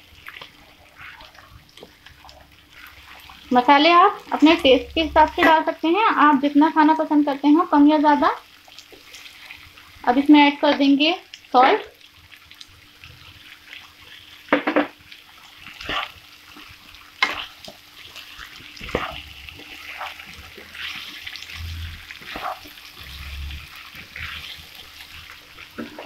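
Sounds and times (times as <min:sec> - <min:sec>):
vegetables sizzling: 0:00.0 - 0:26.0
spatula scraping a wok: 0:15.7 - 0:16.2, 0:18.8 - 0:26.0.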